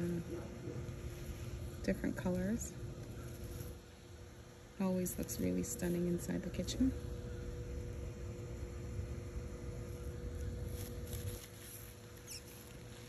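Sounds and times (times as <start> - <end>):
rustling flower stems and leaves: 0.0 - 7.0, 9.7 - 13.0
faint steady hum: 0.0 - 13.0.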